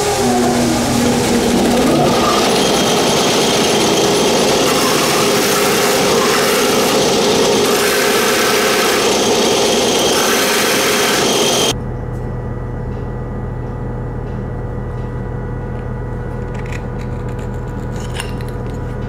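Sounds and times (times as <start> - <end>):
belt sander grinding metal: 0.0 - 11.7.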